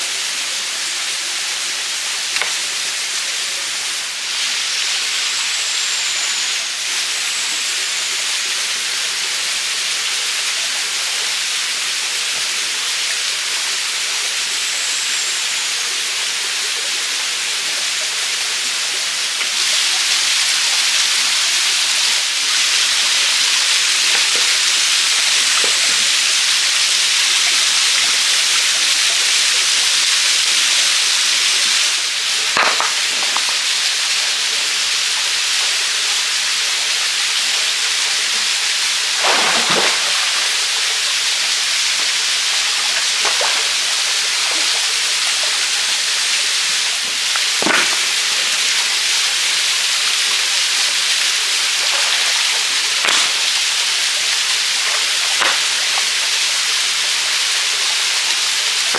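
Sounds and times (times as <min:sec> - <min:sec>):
small waterfall rushing: 0:00.0 - 0:58.9
hands splashing water: 0:32.6 - 0:33.7, 0:39.2 - 0:41.0, 0:51.8 - 0:53.8.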